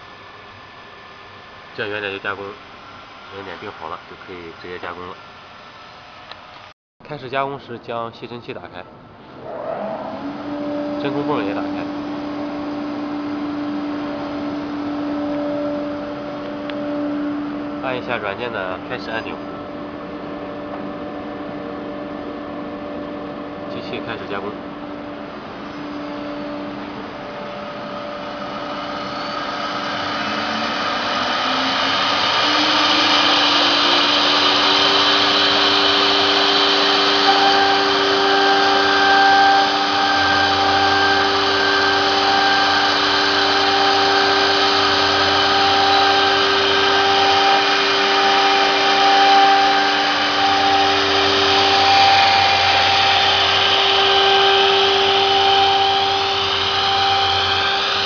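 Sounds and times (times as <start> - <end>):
dust collector running: 0.0 - 6.6, 8.4 - 58.0
vacuum pump running: 0.0 - 58.0
router spindle whine: 9.3 - 58.0.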